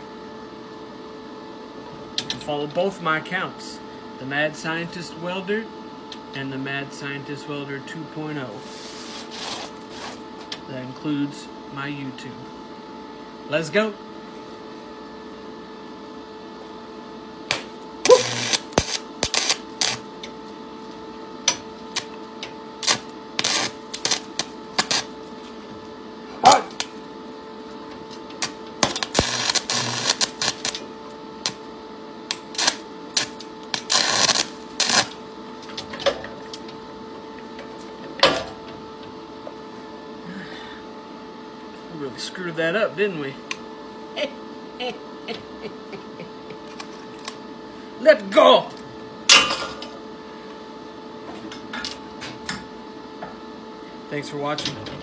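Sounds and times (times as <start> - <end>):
steady welder hum: 0.0 - 55.0
welding arc crackling: 17.5 - 20.1, 21.4 - 22.2, 22.8 - 25.2, 28.3 - 35.2.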